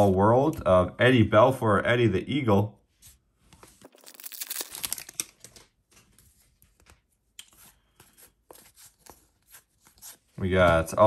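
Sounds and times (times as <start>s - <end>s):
cards rustling and clicking: 3.5s - 10.9s
foil pack crinkling and tearing: 3.8s - 5.6s.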